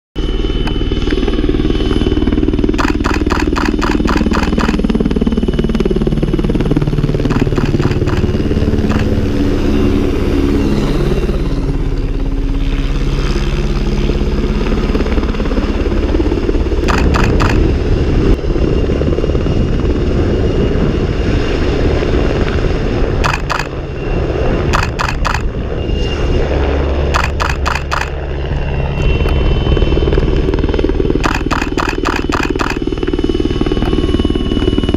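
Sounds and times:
helicopter rotor and engine drone: 0.2s - 34.9s
crackling clicks: 2.8s - 4.8s, 7.3s - 9.2s, 16.8s - 17.6s, 23.2s - 23.8s, 24.8s - 25.5s, 27.2s - 28.2s, 31.2s - 32.8s.

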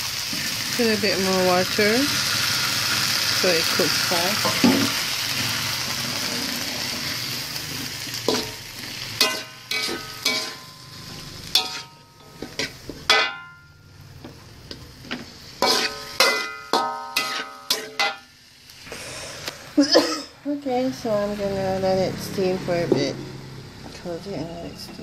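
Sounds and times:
vegetables sizzling in a pan: 0.0s - 25.0s
metal utensil clinking on pan: 8.3s - 8.6s, 9.2s - 13.8s, 15.6s - 18.3s.

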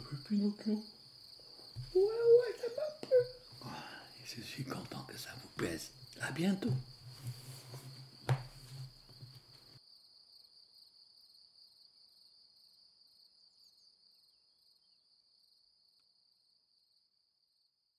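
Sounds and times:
crickets chirring: 0.0s - 17.7s
book laid on wooden table: 6.7s - 9.8s.

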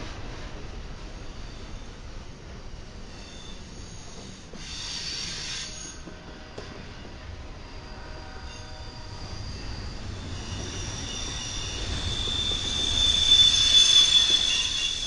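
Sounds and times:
freight train wheels rumbling: 0.0s - 15.0s
faint wheel squeal: 3.0s - 6.1s, 7.6s - 15.0s.

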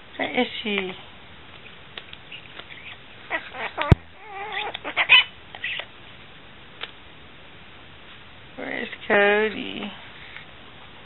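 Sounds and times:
macaw squawking and chattering: 2.3s - 5.9s.

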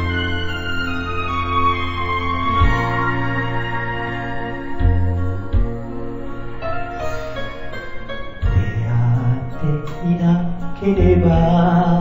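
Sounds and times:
sustained music chord: 0.0s - 9.9s
deep bass note: 2.5s - 6.2s, 8.4s - 11.9s.

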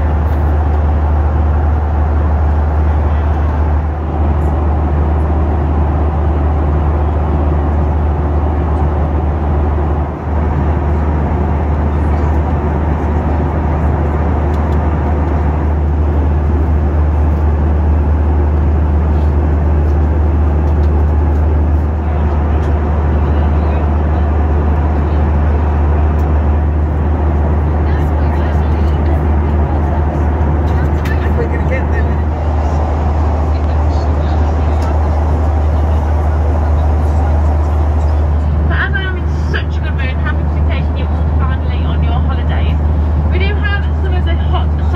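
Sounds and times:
jet engine roar inside cabin: 0.0s - 44.9s.

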